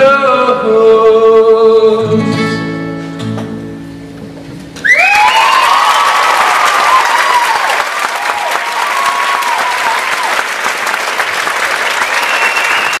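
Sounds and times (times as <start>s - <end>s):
high whoops: 4.8s - 10.4s, 12.0s - 13.0s
audience applauding and cheering: 4.8s - 13.0s.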